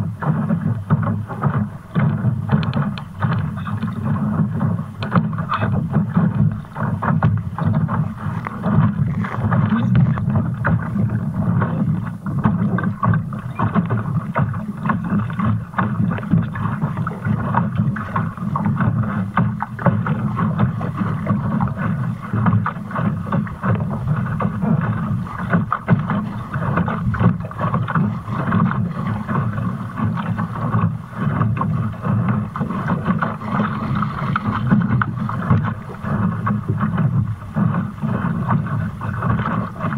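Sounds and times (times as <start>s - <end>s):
water hissing along hull: 0.0s - 39.9s
wind on microphone: 0.0s - 39.9s.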